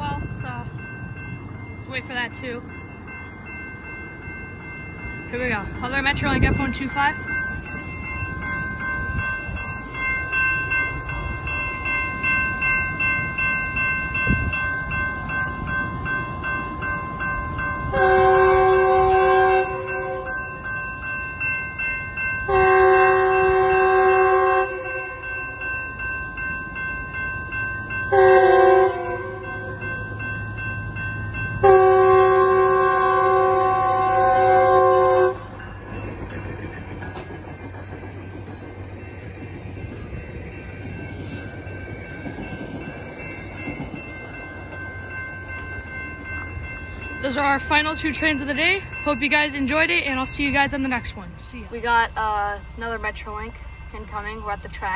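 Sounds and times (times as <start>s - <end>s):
crossing signal bells ringing: 0.0s - 54.9s
low rumble of passing train: 0.0s - 54.9s
locomotive horn blasts: 17.9s - 20.3s, 22.5s - 25.1s, 28.1s - 29.5s, 31.6s - 35.6s.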